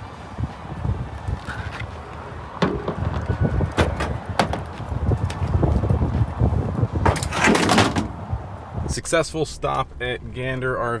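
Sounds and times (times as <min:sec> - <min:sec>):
wind buffeting microphone: 0:00.0 - 0:11.0
tailgate clicks and knocks: 0:02.6 - 0:04.8, 0:07.0 - 0:08.3.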